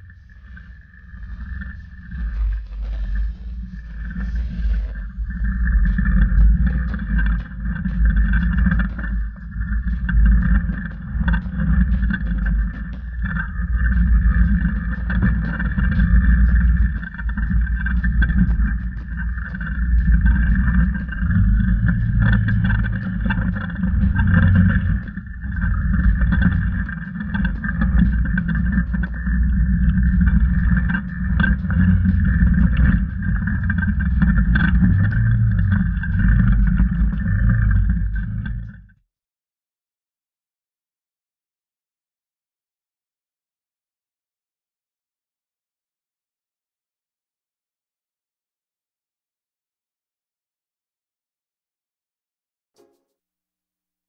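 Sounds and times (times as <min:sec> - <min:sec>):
engine running at low speed: 0:00.0 - 0:38.9.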